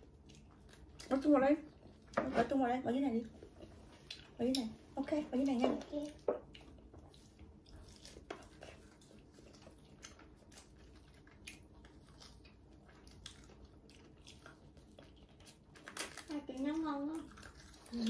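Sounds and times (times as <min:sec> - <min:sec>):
chewing and biting meat: 0:06.1 - 0:16.3, 0:17.2 - 0:18.0.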